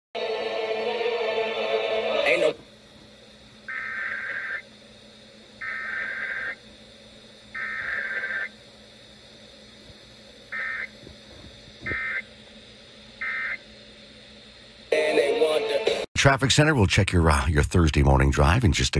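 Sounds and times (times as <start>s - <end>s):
short digital data bursts: 3.7s - 4.7s, 5.6s - 6.6s, 7.5s - 8.6s, 10.5s - 11.0s, 13.2s - 13.6s.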